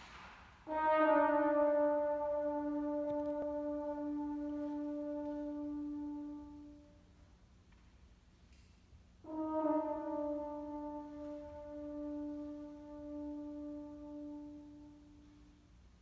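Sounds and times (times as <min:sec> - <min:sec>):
french horns holding a note: 0:00.7 - 0:07.1, 0:09.2 - 0:15.5.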